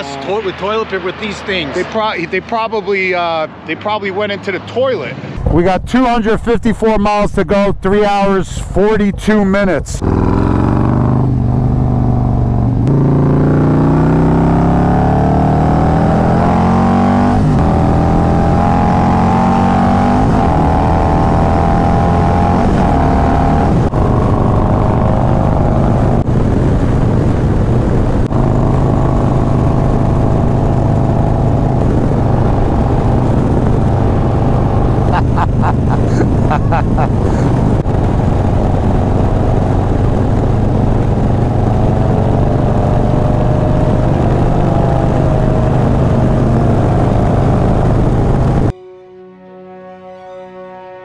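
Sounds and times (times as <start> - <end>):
motorcycle engine accelerating: 10.0 - 48.7
wind rushing: 22.0 - 48.8.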